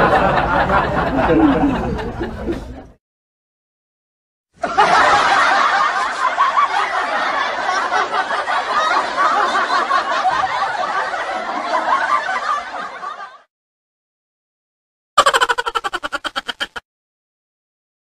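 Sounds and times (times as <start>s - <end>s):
people laughing: 0.0s - 3.0s, 4.6s - 13.5s, 15.2s - 16.8s.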